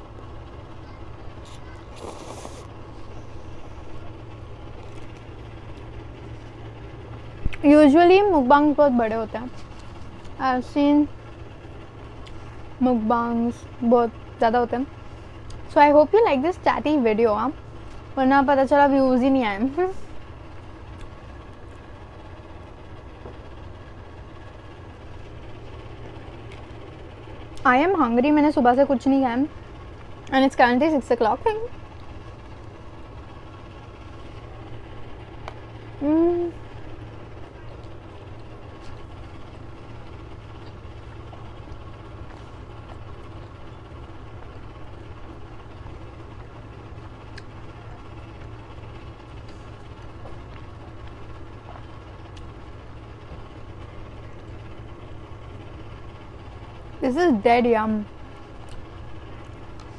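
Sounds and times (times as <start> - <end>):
low background hum: 0.0 - 59.9
person chewing food: 1.4 - 2.8.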